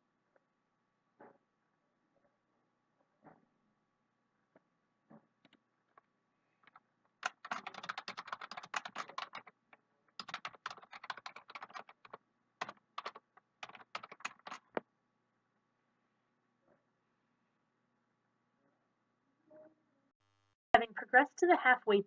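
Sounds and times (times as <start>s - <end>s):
typing on computer keyboard: 6.7s - 14.8s.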